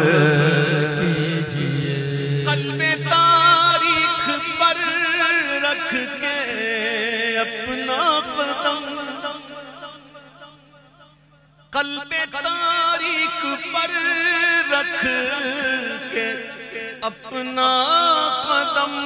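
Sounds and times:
steady low hum: 0.0s - 12.6s
man singing with vibrato: 0.0s - 19.0s.

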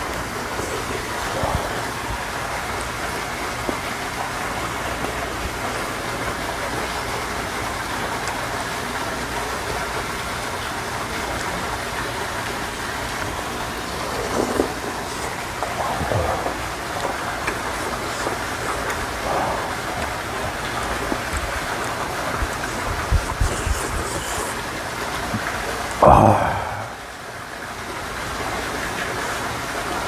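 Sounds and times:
water hissing: 0.0s - 8.0s, 11.5s - 27.4s.

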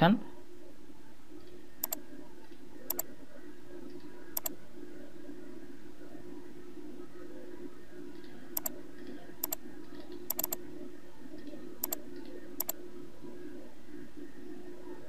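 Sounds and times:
steady low hum: 0.0s - 15.0s
computer mouse clicking: 1.8s - 2.0s, 2.9s - 3.1s, 3.9s - 4.6s, 8.2s - 8.8s, 9.4s - 10.6s, 11.4s - 12.8s.

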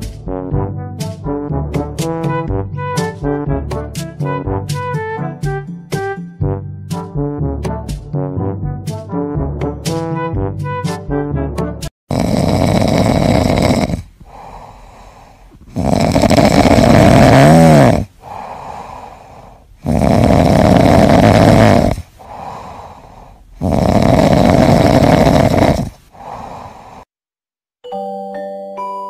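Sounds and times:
kitten snoring: 12.1s - 27.1s
quiet breaths: 12.4s - 27.1s.

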